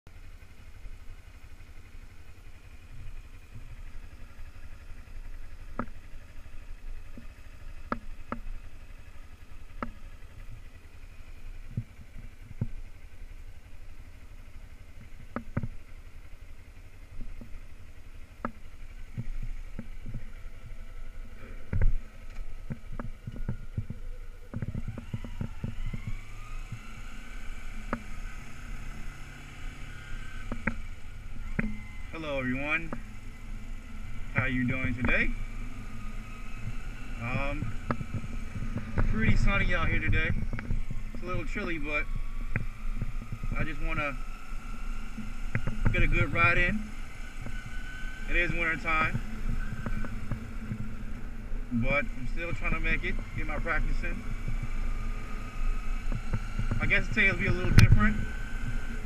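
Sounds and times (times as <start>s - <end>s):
motorcycle engine idling: 0.1s - 59.0s
motorcycle engine revving: 0.1s - 59.0s.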